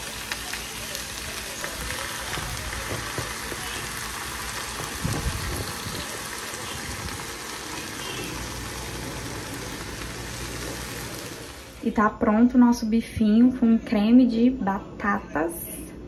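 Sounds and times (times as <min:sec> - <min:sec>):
meat sizzling in a frying pan: 0:00.0 - 0:11.8.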